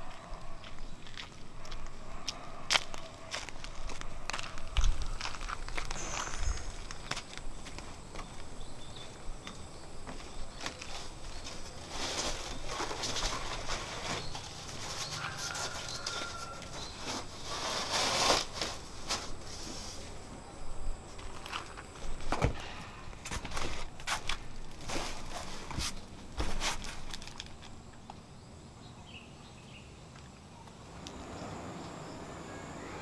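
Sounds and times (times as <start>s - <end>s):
footsteps: 0.0s - 20.4s
plastic sack rustling: 10.5s - 20.2s, 23.2s - 27.7s.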